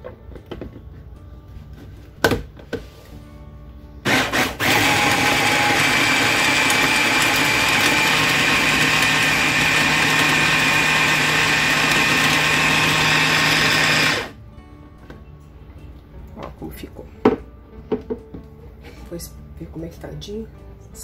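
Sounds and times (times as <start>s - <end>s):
food chopper motor running: 4.0s - 14.4s.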